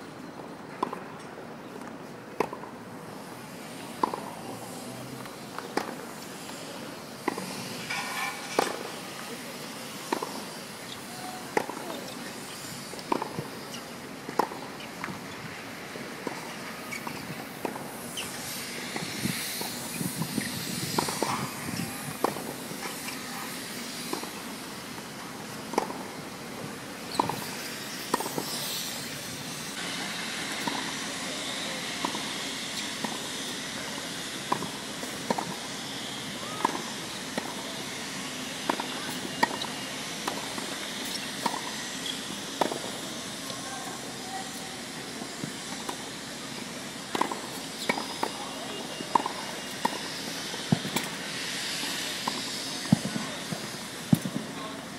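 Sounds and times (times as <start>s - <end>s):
steady background hiss: 0.0s - 54.9s
tennis ball hit by racquets: 0.8s - 1.0s, 3.9s - 4.4s, 5.3s - 6.0s, 10.0s - 15.3s, 16.2s - 24.4s, 25.0s - 26.1s, 27.1s - 29.0s, 30.0s - 31.1s, 32.0s - 33.3s, 34.4s - 43.6s, 47.1s - 48.4s, 49.1s - 51.2s.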